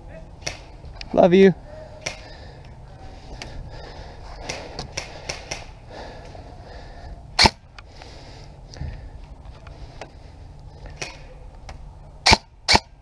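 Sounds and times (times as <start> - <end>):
loud airsoft gunfire burst: 7.4 - 7.6.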